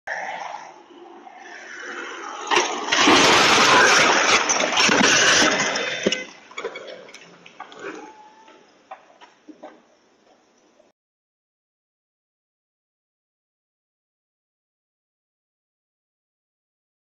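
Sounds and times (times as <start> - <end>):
loud rush of noise: 0.1 - 6.1
airplane crashing into car: 2.5 - 6.3.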